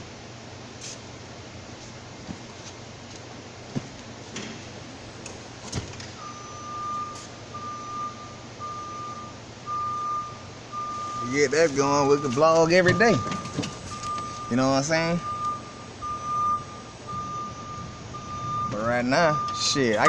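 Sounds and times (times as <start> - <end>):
backup alarm beeping: 6.2 - 20.0.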